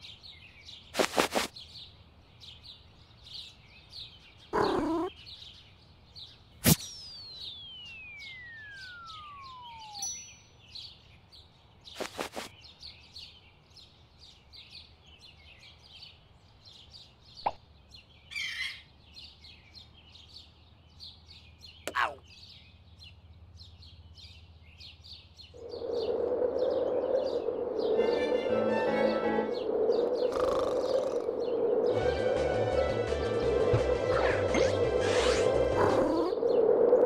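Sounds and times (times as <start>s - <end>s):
birds chirping: 0.0s - 32.0s, 35.8s - 37.0s
whistle sliding down in pitch: 7.7s - 10.0s
music: 28.0s - 29.6s, 31.9s - 36.0s.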